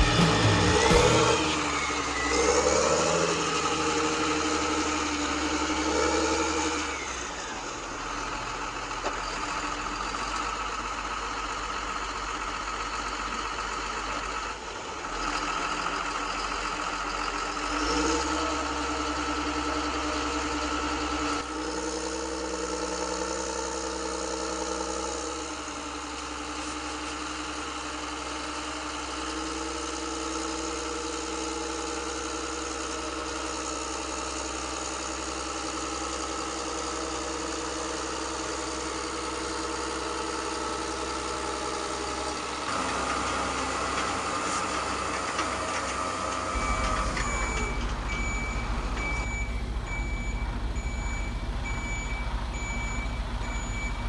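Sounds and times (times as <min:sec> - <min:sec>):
simulated diesel engine idling: 0:00.0 - 0:54.0.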